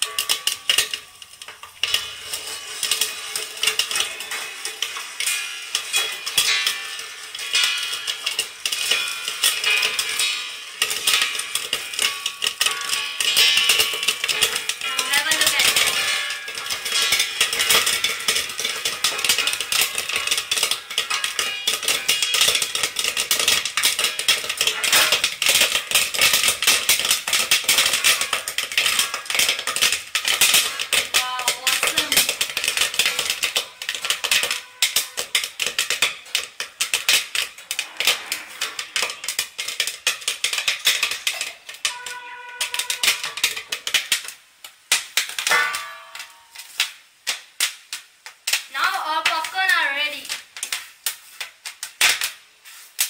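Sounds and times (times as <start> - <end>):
popcorn popping in a covered wok: 0.0 - 53.0.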